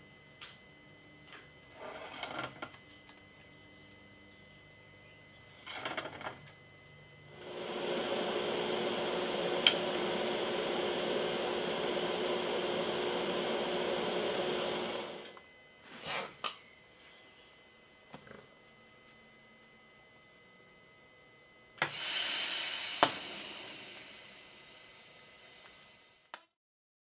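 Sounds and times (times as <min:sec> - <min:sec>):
small electric motor running: 0:21.8 - 0:26.3.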